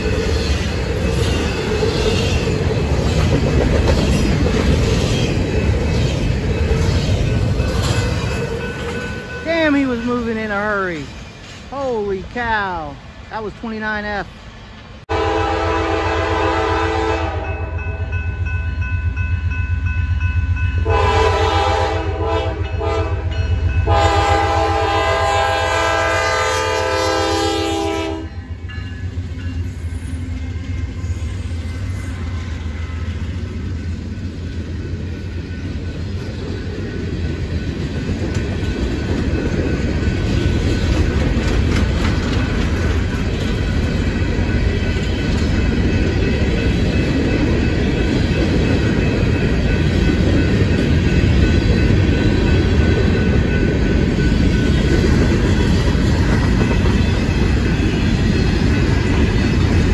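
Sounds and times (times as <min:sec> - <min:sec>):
train wheels clattering: 0:00.0 - 0:10.2, 0:32.2 - 0:59.9
locomotive air horn: 0:15.1 - 0:17.8, 0:20.8 - 0:28.3.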